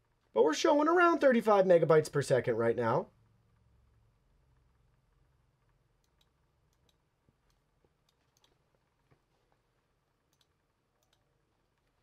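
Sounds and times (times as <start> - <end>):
computer mouse clicks: 6.0 - 8.6, 10.3 - 12.0.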